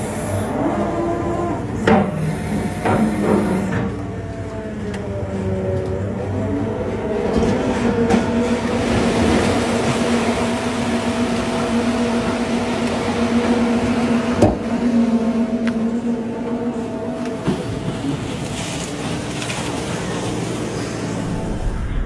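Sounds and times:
drilling rig engine hum: 0.0s - 22.0s
drilling bucket churning mud and water: 7.0s - 16.6s.

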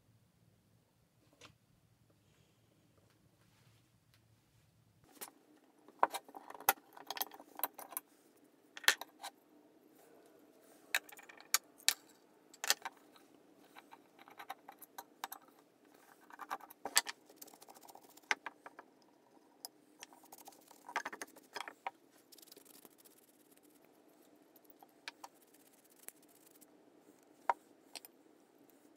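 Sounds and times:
soft brushing: 3.4s - 5.2s, 20.1s - 27.9s.

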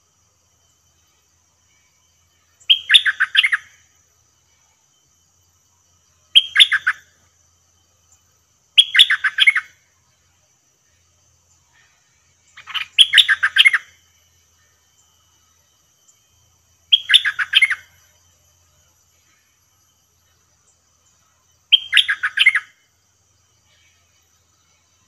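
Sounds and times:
bird singing rapid notes: 1.6s - 4.0s, 6.0s - 7.3s, 8.0s - 9.9s, 11.2s - 15.4s, 16.0s - 25.0s.

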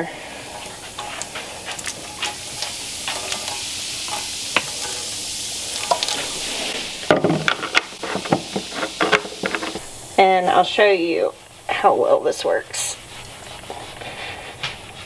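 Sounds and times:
fizzing bubbles hissing: 0.0s - 15.0s
bottle knocking on wooden counter: 7.1s - 7.5s.

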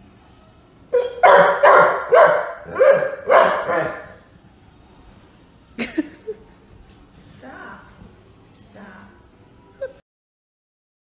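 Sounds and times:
dog barking: 0.9s - 4.2s.

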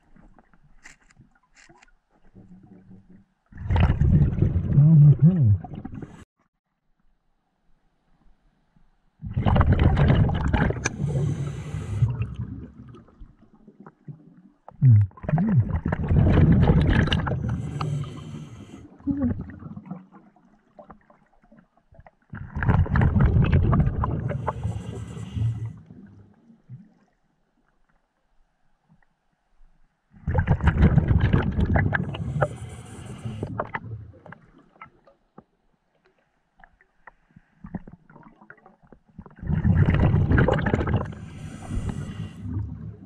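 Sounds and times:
diver exhaling bubbles underwater: 3.6s - 6.2s, 9.2s - 20.3s, 22.3s - 26.9s, 30.2s - 34.8s, 37.7s - 43.0s.

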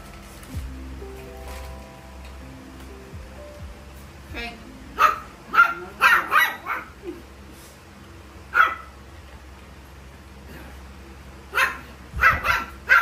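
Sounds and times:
faint low hum: 0.0s - 13.0s
dog barking: 5.0s - 7.0s, 8.5s - 9.0s, 11.5s - 13.0s.

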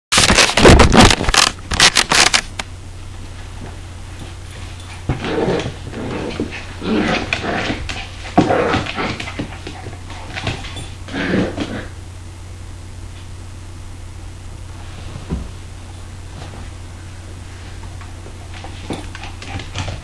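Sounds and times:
steady low hum: 0.2s - 20.0s
puppies play-growling: 4.6s - 12.0s, 18.2s - 20.0s.

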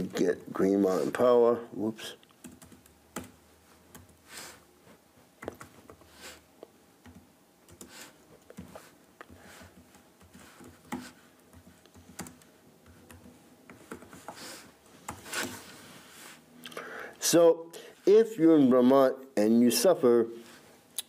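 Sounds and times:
laptop keyboard typing: 2.4s - 4.2s, 5.4s - 6.1s, 7.0s - 14.4s.

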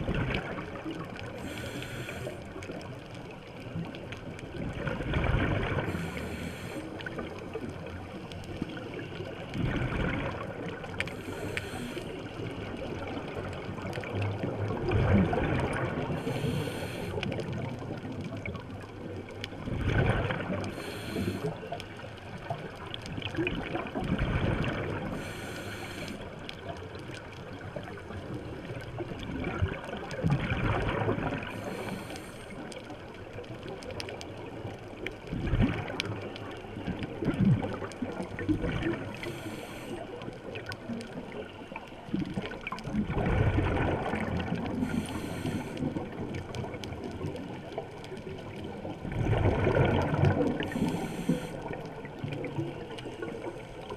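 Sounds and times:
gurgling exhaled bubbles: 0.0s - 53.9s
regulator hissing inhalations: 1.4s - 2.4s, 11.2s - 12.2s, 16.2s - 17.2s, 20.7s - 21.5s, 25.2s - 26.2s, 31.6s - 32.5s, 39.2s - 40.0s, 44.8s - 45.8s, 50.7s - 51.6s.

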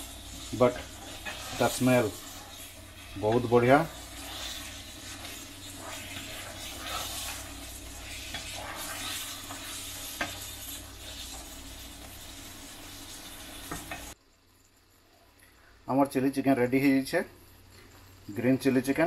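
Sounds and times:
curry simmering and sizzling: 0.0s - 14.2s
wooden spatula stirring: 0.0s - 14.2s.

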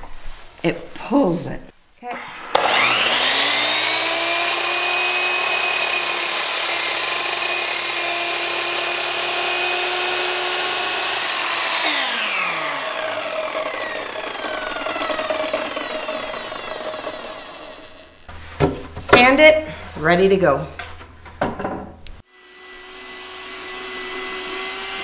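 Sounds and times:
miter saw cutting wood: 2.1s - 18.3s, 22.3s - 25.0s
saw blade winding down: 2.1s - 18.3s, 22.3s - 25.0s.

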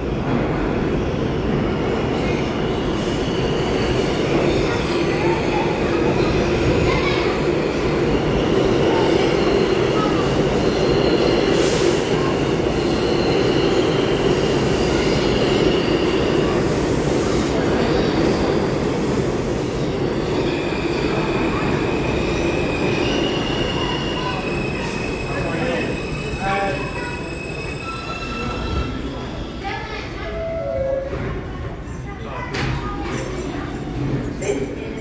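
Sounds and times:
subway train rumble: 0.0s - 35.0s.

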